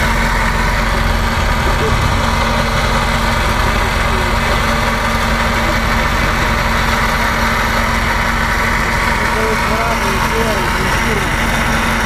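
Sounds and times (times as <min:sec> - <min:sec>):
electric winch motor hum: 0:00.0 - 0:12.0
vehicle engine running: 0:00.0 - 0:12.0.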